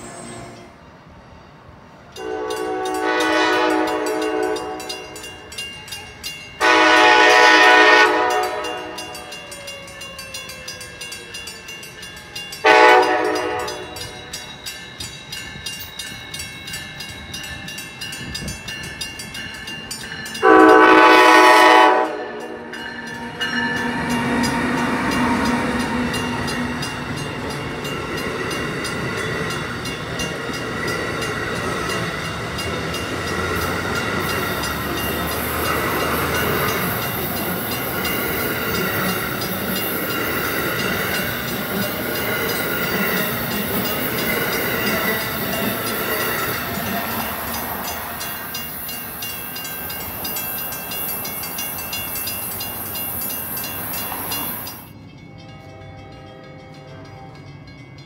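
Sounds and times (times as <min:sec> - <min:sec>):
train horn blasts: 0:00.0 - 0:00.8, 0:02.2 - 0:05.2, 0:06.6 - 0:09.4, 0:12.6 - 0:14.2, 0:20.4 - 0:24.5
train cars rolling over rails: 0:01.8 - 0:55.4
crossing bell ringing rapidly: 0:02.2 - 0:58.0.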